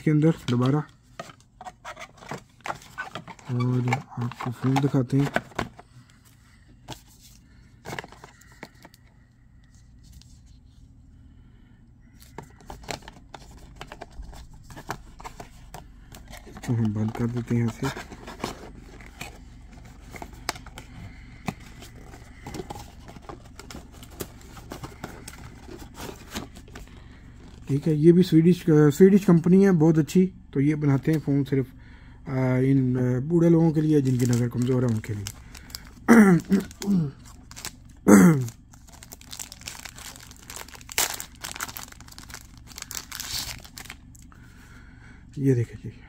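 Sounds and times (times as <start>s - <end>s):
plastic bag crinkling: 34.0s - 44.2s.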